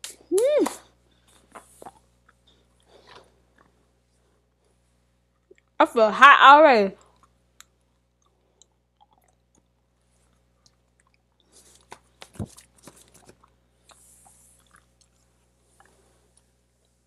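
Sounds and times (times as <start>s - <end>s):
person chewing crunchy gum: 1.2s - 3.8s, 7.0s - 17.0s.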